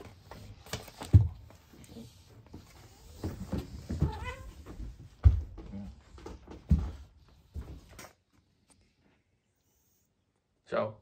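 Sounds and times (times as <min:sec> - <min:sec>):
cat meowing: 0:04.0 - 0:04.6.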